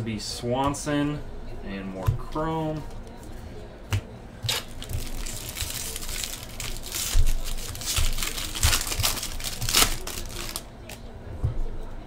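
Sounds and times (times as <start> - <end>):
foil wrapper crinkling and tearing: 4.5 - 11.0.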